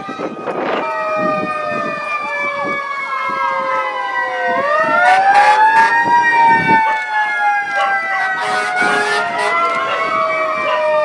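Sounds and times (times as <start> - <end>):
sirens wailing: 0.0 - 11.0
loud horn blasts: 5.0 - 6.1, 7.8 - 10.2.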